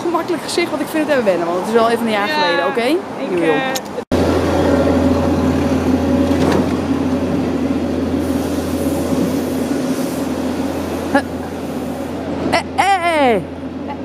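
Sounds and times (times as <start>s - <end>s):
heavy vehicle engine drone: 4.0s - 14.0s.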